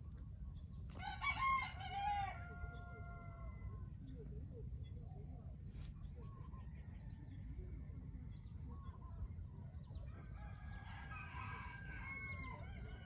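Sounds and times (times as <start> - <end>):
rooster crowing: 1.0 - 3.7.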